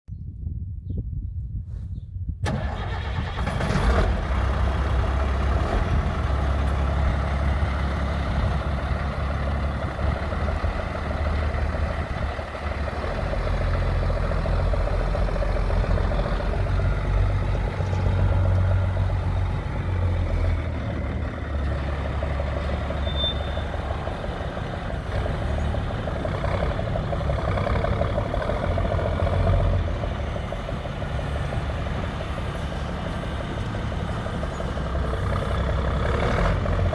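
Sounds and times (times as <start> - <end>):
truck diesel engine running: 2.4 - 36.9.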